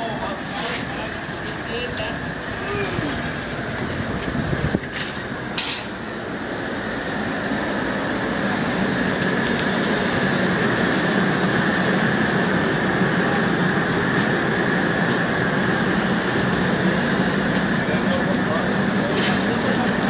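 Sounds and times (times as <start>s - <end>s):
gas burner rushing: 0.0s - 20.0s.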